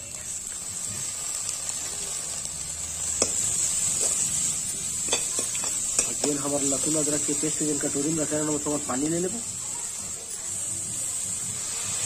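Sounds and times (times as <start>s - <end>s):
food sizzling in oil: 0.0s - 12.0s
steel spoon scraping a pan: 3.0s - 9.0s.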